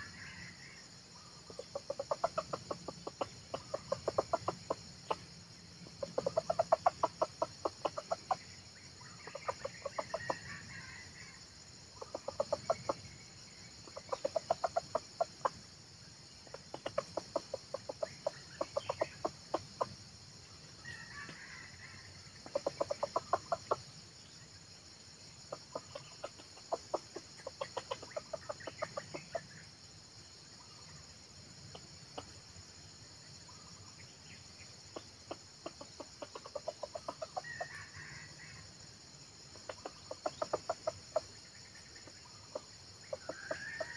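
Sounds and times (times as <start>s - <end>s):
junglefowl clucking: 0.0s - 0.6s, 1.4s - 11.0s, 12.0s - 13.2s, 13.8s - 15.6s, 16.4s - 20.0s, 20.8s - 24.0s, 25.4s - 29.6s, 34.9s - 38.5s, 39.5s - 43.9s.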